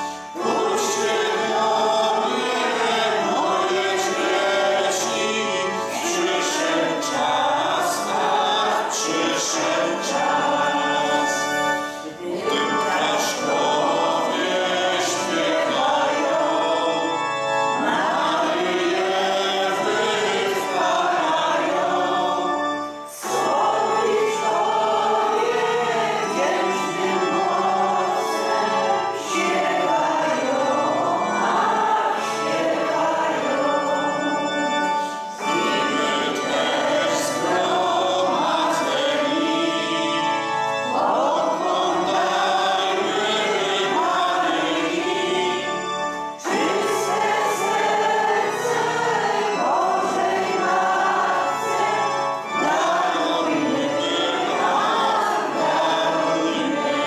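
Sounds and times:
congregation singing a hymn: 0.0s - 57.0s.

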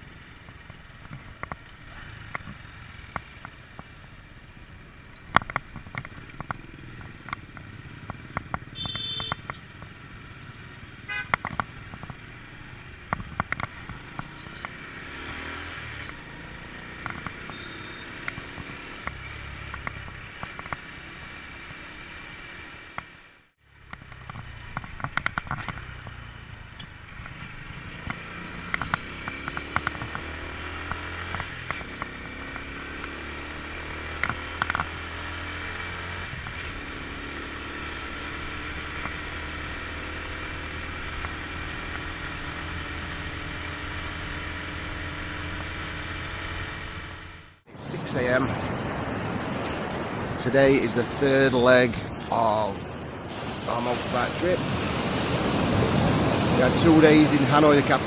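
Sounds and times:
scooter engine: 0.0s - 23.0s, 23.6s - 50.4s
sharp knocks and crackles: 5.2s - 8.7s, 13.1s - 14.8s, 17.0s - 17.4s, 23.9s - 26.2s
short high horn beep: 8.8s - 9.4s, 17.5s - 18.2s.

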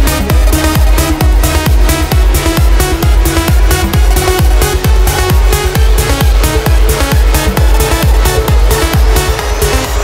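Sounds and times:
kick drum beat: 0.0s - 10.0s
sustained synth chords: 0.0s - 10.0s.

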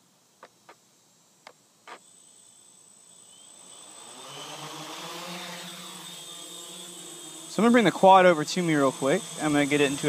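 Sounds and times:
quadcopter motors whine and buzz: 1.4s - 10.0s.

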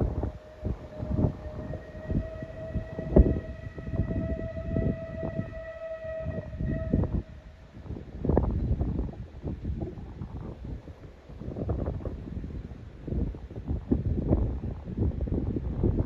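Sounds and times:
steam locomotive whistle: 0.0s - 7.6s
wind buffeting microphone: 0.0s - 16.0s.

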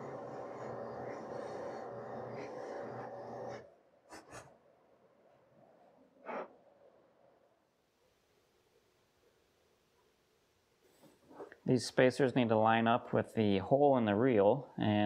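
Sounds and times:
drill press motor hum: 0.0s - 3.7s.

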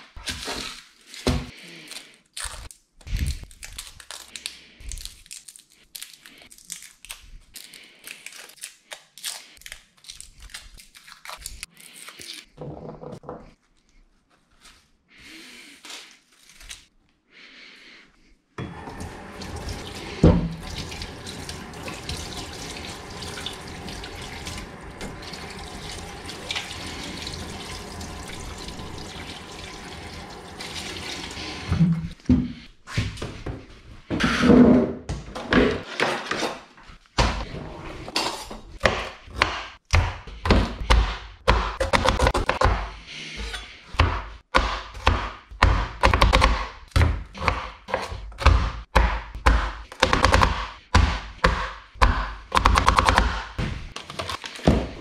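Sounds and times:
knife chopping on plastic board: 38.8s - 43.0s, 44.0s - 53.8s.

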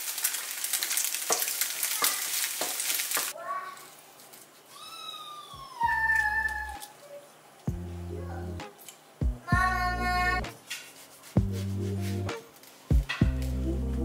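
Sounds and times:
bread sizzling in a frying pan: 0.0s - 3.4s
gentle music: 5.5s - 10.6s, 11.3s - 14.0s.

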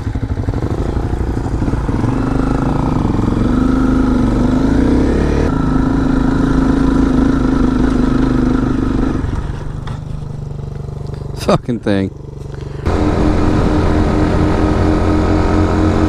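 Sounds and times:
motorcycle engine accelerating: 0.0s - 16.0s.

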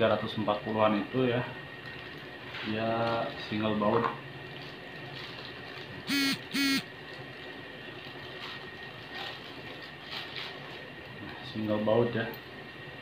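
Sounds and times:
horn honking: 6.1s - 6.8s.

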